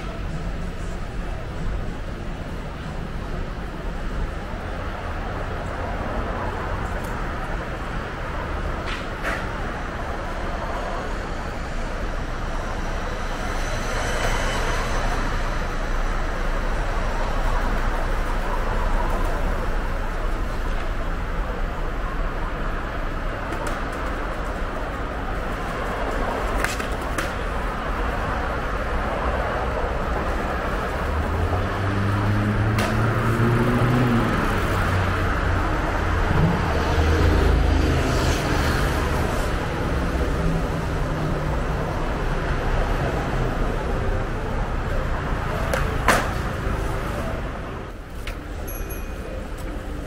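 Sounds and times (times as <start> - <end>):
road traffic noise: 0.0 - 50.0
vehicle engine passing by: 31.0 - 41.5.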